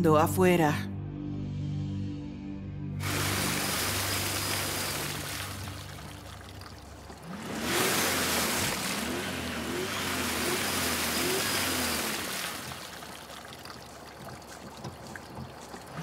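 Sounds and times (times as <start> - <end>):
engine revving: 3.0 - 13.4
wheel spinning in mud: 3.0 - 16.0.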